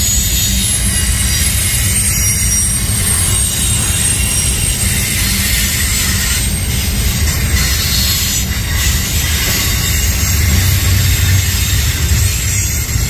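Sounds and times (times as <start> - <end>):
high-pitched wheel squeal: 0.0 - 13.0
rail cars rumbling past: 0.0 - 13.0.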